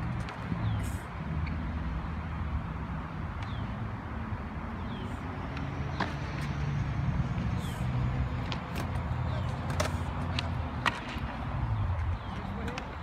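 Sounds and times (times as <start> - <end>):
scooter wheels rolling on concrete: 0.0 - 1.6, 5.4 - 13.0.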